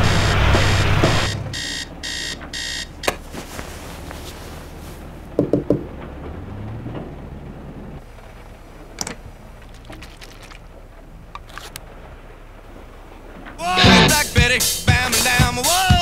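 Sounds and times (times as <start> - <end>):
alarm clock beeping: 0.0 - 3.2
excavator engine rumbling: 0.0 - 16.0
knuckles rapping on a window: 5.4 - 5.9.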